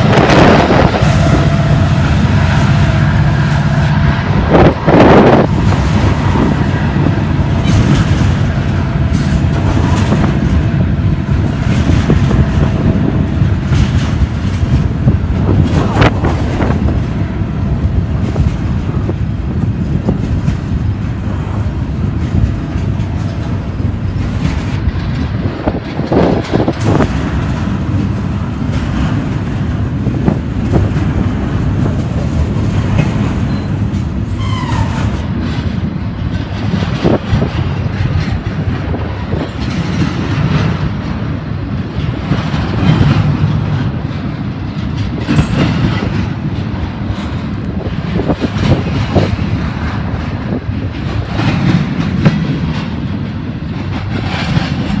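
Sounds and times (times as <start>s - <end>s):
train wheels rumbling on rail: 0.0s - 55.0s
wheels knocking at rail joints: 0.0s - 55.0s
high squeal of train wheels: 33.4s - 35.8s.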